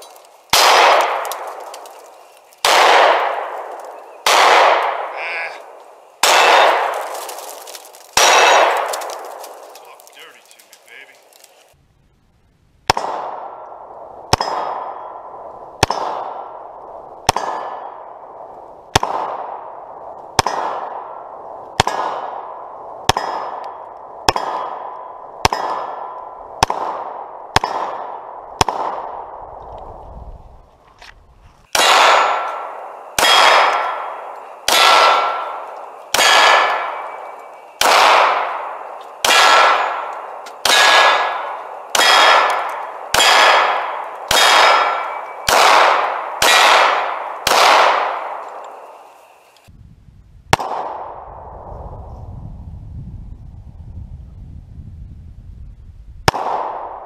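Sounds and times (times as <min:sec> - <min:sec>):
pistol shots: 0:00.5 - 0:10.6, 0:12.8 - 0:29.4, 0:31.7 - 0:49.0, 0:50.5 - 0:51.2, 0:56.2 - 0:57.0
steel target ringing: 0:31.7 - 0:45.8.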